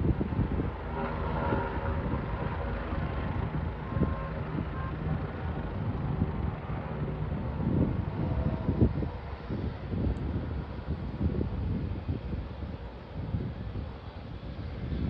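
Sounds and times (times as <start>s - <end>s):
distant engine drone: 0.0s - 15.0s
wind gusting on microphone: 0.0s - 15.0s.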